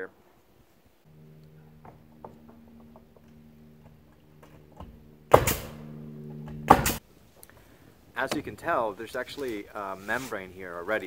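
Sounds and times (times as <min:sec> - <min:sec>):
steady machine hum: 0:01.0 - 0:08.1
faint knocks: 0:01.1 - 0:07.0
pneumatic nailer shots: 0:04.4 - 0:07.0.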